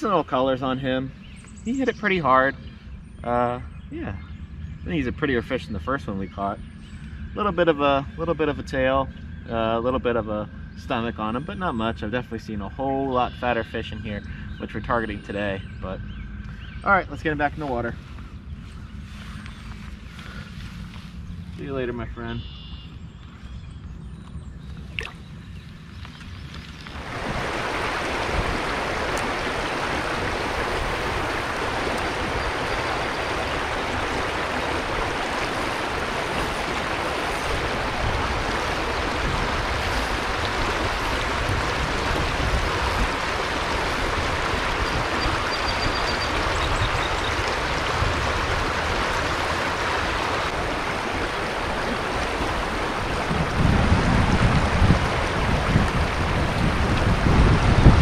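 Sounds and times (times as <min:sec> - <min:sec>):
low rumble: 0:00.9 - 0:45.4
river water rushing: 0:26.8 - 0:58.0.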